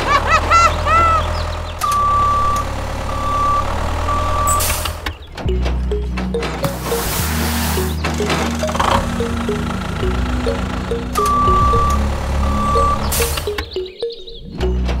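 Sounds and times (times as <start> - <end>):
vehicle engine rumble: 0.0 - 13.5
reversing alarm beeping: 1.8 - 4.8, 5.5 - 14.2
background music: 5.5 - 15.0.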